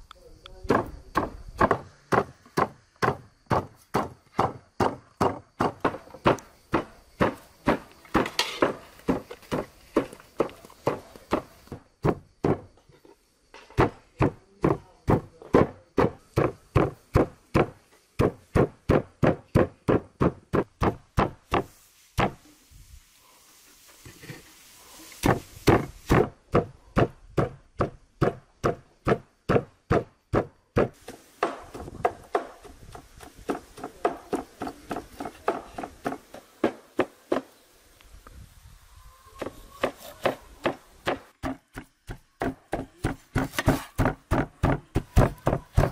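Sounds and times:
cleaver chopping on wooden board: 0:25.2 - 0:37.4, 0:39.4 - 0:45.9.

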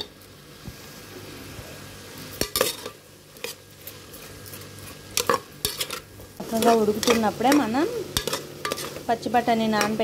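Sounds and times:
vegetables sizzling in butter: 0:00.0 - 0:10.0
spoon scraping pot: 0:02.4 - 0:09.0.

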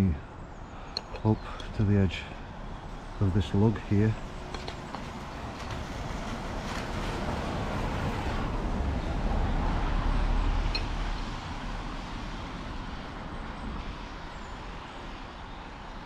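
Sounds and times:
vehicle passing by: 0:05.0 - 0:14.2.

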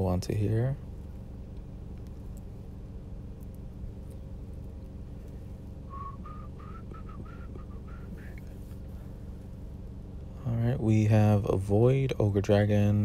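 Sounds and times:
steady low hum: 0:00.0 - 0:13.0
person whistling: 0:05.9 - 0:08.4.

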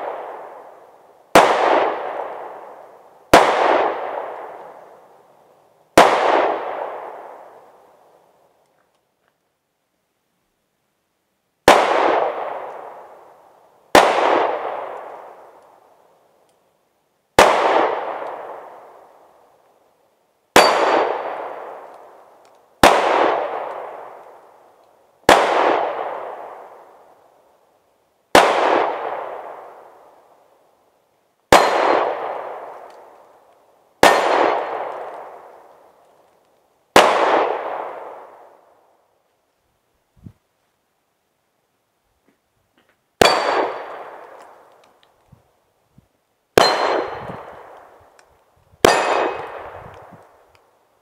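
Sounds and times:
pistol shots: 0:01.3 - 0:02.4, 0:03.3 - 0:04.7, 0:06.0 - 0:07.2, 0:11.7 - 0:12.9, 0:13.9 - 0:15.0, 0:17.4 - 0:18.7, 0:20.6 - 0:21.8, 0:22.8 - 0:24.2, 0:25.3 - 0:26.7, 0:28.3 - 0:29.7, 0:31.5 - 0:32.8, 0:34.0 - 0:35.5, 0:37.0 - 0:38.4, 0:43.2 - 0:44.5, 0:46.6 - 0:47.9, 0:48.8 - 0:49.9.

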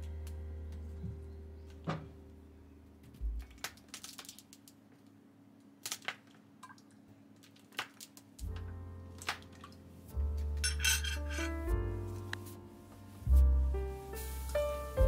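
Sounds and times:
background music: 0:08.5 - 0:15.0.

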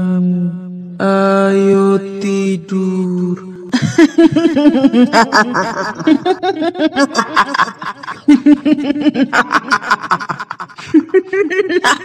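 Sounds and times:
woman cackling laugh: 0:03.7 - 0:12.0.

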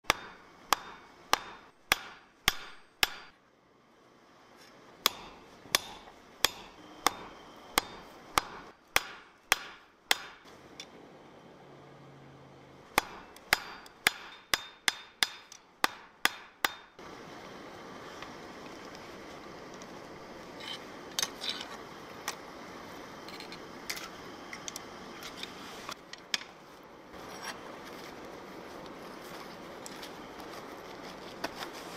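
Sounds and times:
hammer striking hot metal on anvil: 0:00.1 - 0:03.4, 0:05.0 - 0:10.4, 0:13.0 - 0:17.0.

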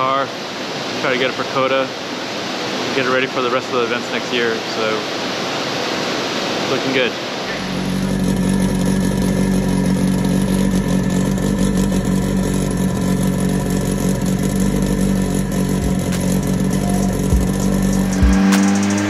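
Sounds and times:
turbocharged car engine revving: 0:07.4 - 0:19.0
exhaust pops: 0:07.5 - 0:19.0.

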